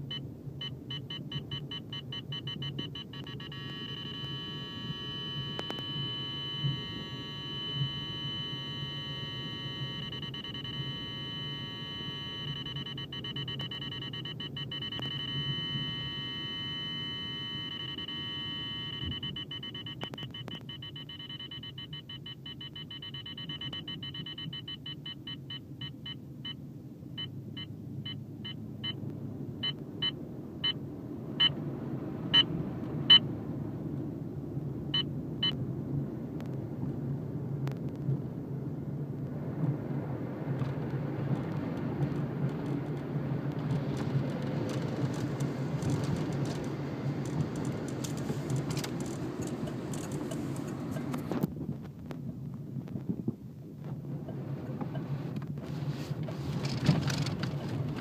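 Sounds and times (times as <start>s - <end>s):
radar detector beeping: 0.0s - 26.6s, 27.2s - 29.0s, 29.6s - 30.8s, 32.3s - 32.5s
car road rumble: 0.0s - 58.0s.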